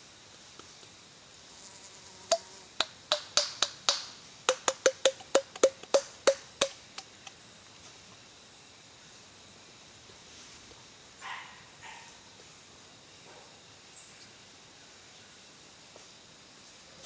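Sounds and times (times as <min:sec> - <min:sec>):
high insect hiss: 0:00.0 - 0:17.0
peccaries clacking teeth: 0:02.3 - 0:07.3.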